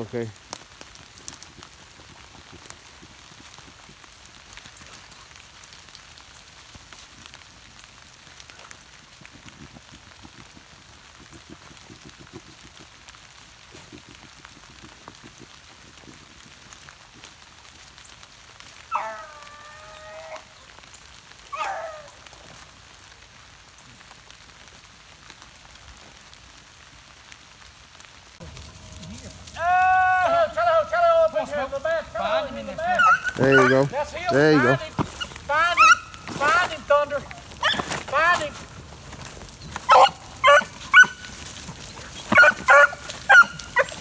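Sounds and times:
dry leaves crackling: 0:00.0 - 0:44.0
soft outdoor hiss: 0:00.0 - 0:44.0
light ticks: 0:05.6 - 0:06.3.

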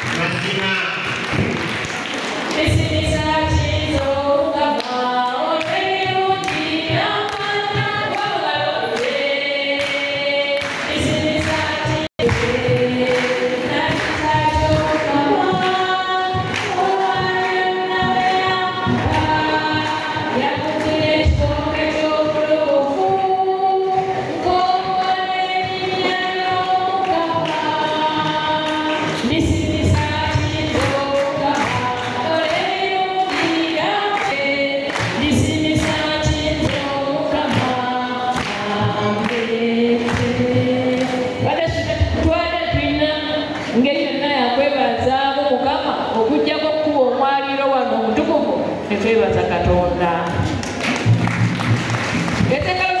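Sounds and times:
choir singing: 0:02.1 - 0:43.5.

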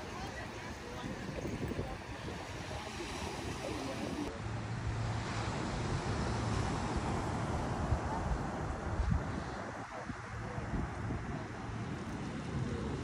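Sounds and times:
ocean surf breaking: 0:00.0 - 0:04.3
wind rumbling on microphone: 0:00.0 - 0:13.0.

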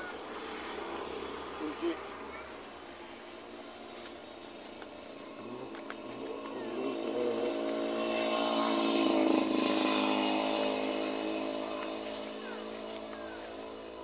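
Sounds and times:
vehicle engine passing by: 0:00.0 - 0:14.0.

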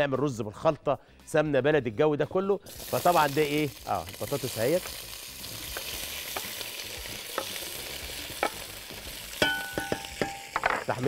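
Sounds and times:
potato frying in oil: 0:02.7 - 0:11.0.

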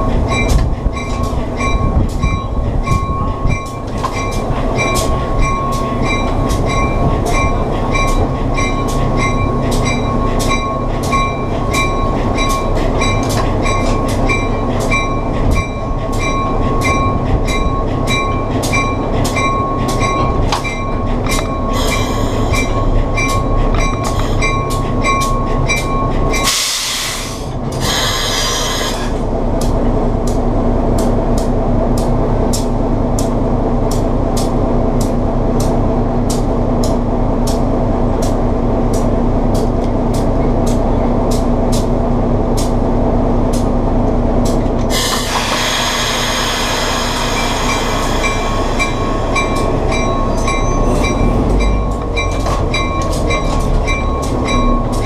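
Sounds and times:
diesel engine running: 0:00.0 - 0:40.2.

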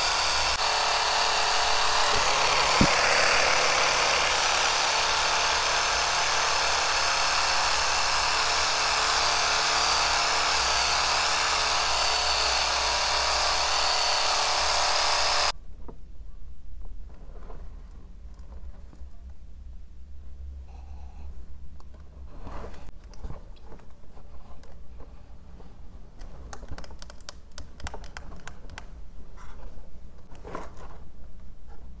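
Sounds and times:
epilator motor buzzing: 0:00.0 - 0:15.5
soft rubbing rustles: 0:22.2 - 0:26.1.

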